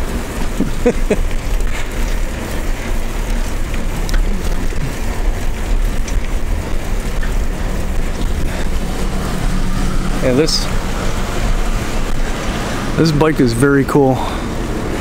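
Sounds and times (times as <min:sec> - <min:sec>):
bicycle chirps and clicks: 0:00.0 - 0:12.6
wind buffeting microphone: 0:00.0 - 0:15.0.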